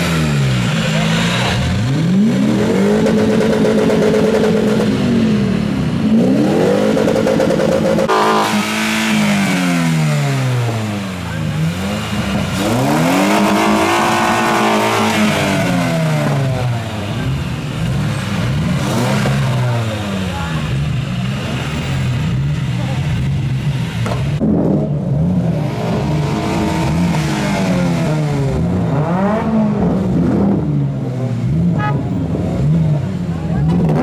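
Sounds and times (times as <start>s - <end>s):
car engine revving: 0.0s - 34.0s.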